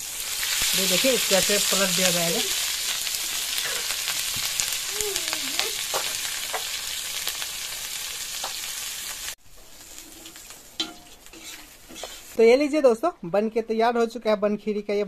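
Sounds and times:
oil sizzling: 0.0s - 13.0s
metal spatula scraping: 9.6s - 12.4s.

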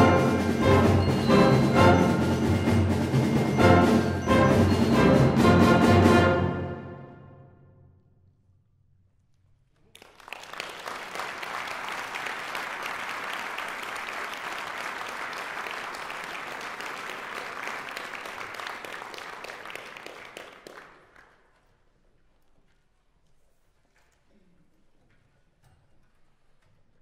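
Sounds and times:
audience applauding: 9.8s - 21.5s.

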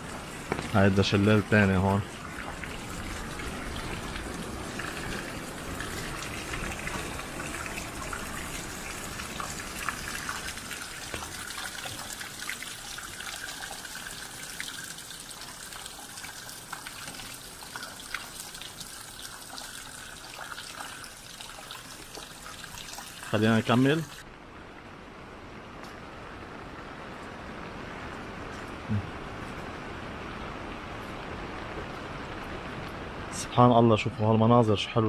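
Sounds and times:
water drips ticking: 0.0s - 24.2s
waterfall trickling and splashing: 0.0s - 35.0s.

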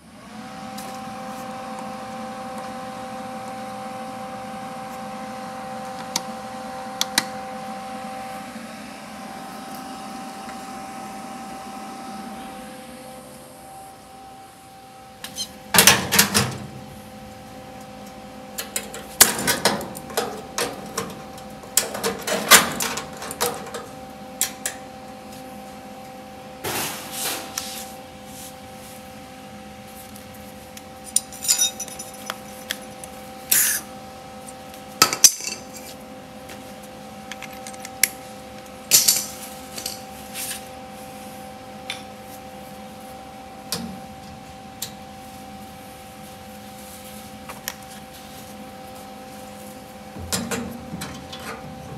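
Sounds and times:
faint steady hum: 0.0s - 26.7s.

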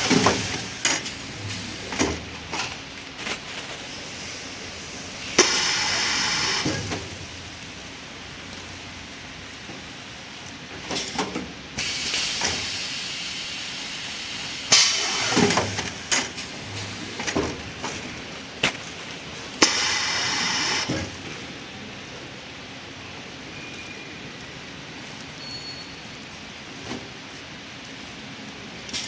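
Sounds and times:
hissing air bursts: 3.8s - 7.2s, 11.8s - 17.3s, 19.6s - 21.0s.

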